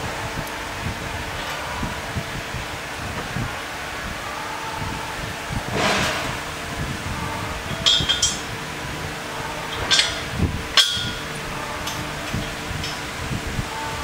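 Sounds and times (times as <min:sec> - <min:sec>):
metal parts clinking: 0:07.6 - 0:14.0.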